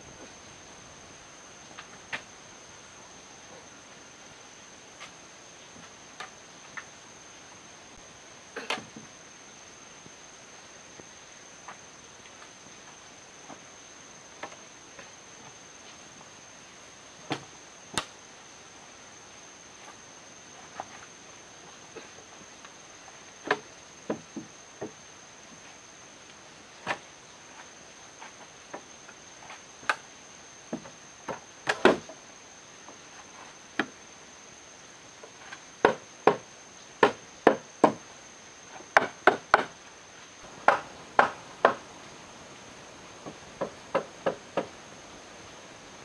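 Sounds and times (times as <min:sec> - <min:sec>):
hammer knocking on wood: 0:40.6 - 0:41.8, 0:43.2 - 0:44.7.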